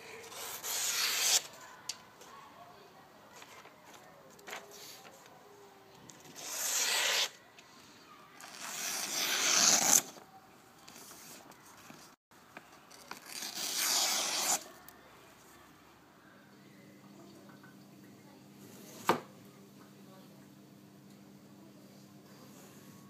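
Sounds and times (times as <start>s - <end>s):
knife slicing paper: 0.3s - 1.6s, 6.3s - 7.4s, 8.4s - 10.2s, 13.0s - 14.7s.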